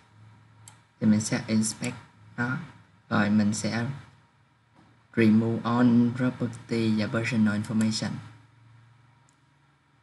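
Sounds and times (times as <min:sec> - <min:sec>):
man speaking: 0:01.0 - 0:04.2, 0:05.1 - 0:08.4.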